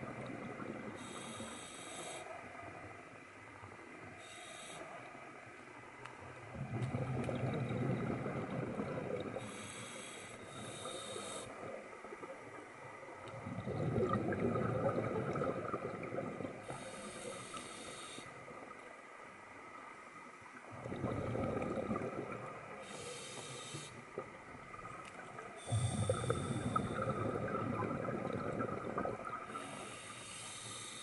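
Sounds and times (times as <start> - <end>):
regulator breath hiss: 1.0 - 2.3, 4.2 - 5.0, 9.4 - 11.6, 16.7 - 18.4, 22.8 - 24.0, 29.5 - 31.0
exhaled bubbles rushing: 6.5 - 9.4, 13.3 - 16.7, 20.7 - 22.8, 24.2 - 29.6.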